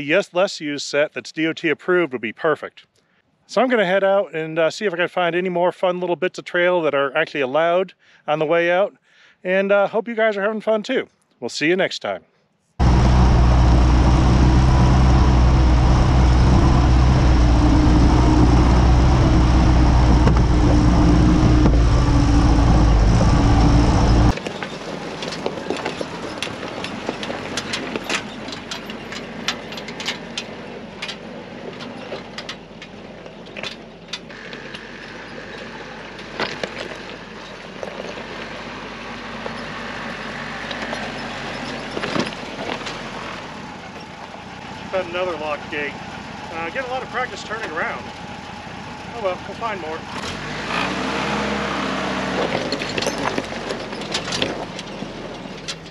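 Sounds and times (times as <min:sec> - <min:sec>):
rocks crunching under tyres: 0:12.8 - 0:44.8, 0:51.8 - 0:55.9
tyres on gravel: 0:12.8 - 0:55.9
vehicle engine rumble: 0:12.8 - 0:55.9.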